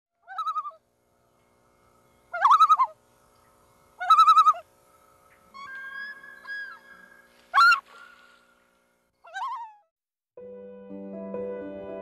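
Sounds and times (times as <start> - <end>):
bird quavering calls: 0.2 - 0.8, 2.3 - 9.8.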